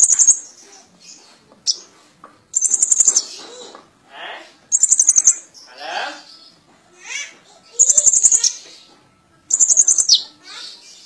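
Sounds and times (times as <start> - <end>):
bird chattering trills: 0.0 - 0.9, 2.5 - 3.4, 4.7 - 5.9, 7.8 - 8.6, 9.5 - 10.4
soft bird chirps: 0.0 - 3.7, 4.6 - 6.6, 7.6 - 11.0.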